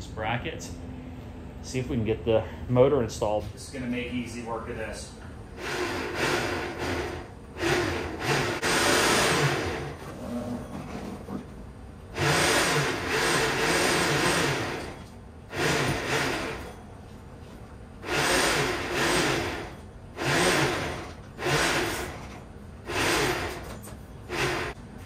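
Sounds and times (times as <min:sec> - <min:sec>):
electric hoist motor winching: 0:05.5 - 0:11.1, 0:12.1 - 0:16.9, 0:18.0 - 0:24.8.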